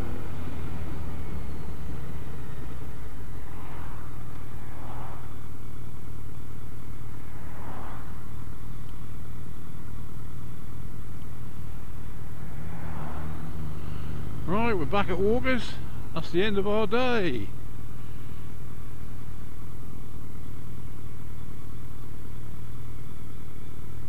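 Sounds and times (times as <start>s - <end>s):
motorcycle engine running: 0.0s - 24.0s
road noise: 0.0s - 24.0s
car swishing past: 3.3s - 5.6s, 7.0s - 8.9s, 11.6s - 16.1s
wind rushing: 7.2s - 8.2s.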